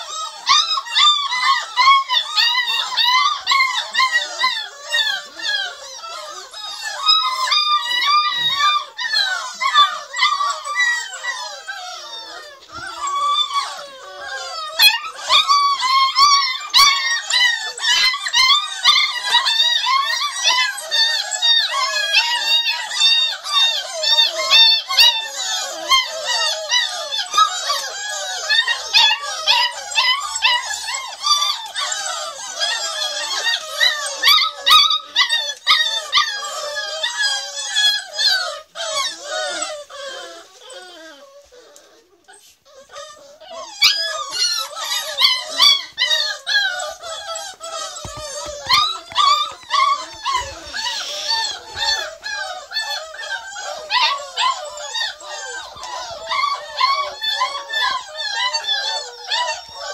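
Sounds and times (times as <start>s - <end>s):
puppies whining and yelping: 0.0s - 59.9s.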